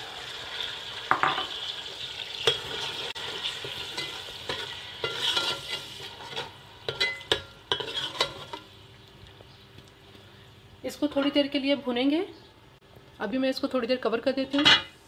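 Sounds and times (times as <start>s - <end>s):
paste sizzling in oil: 0.0s - 8.9s
spoon scraping metal pot: 2.4s - 8.7s.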